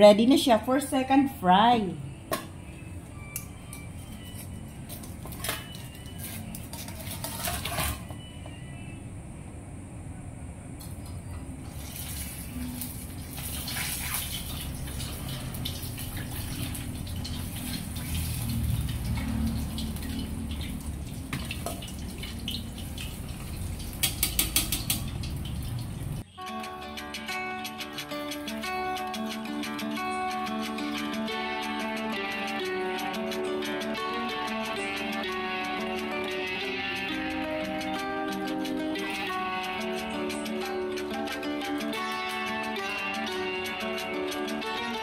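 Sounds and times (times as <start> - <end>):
oil sizzling and bubbling: 11.6 - 26.3.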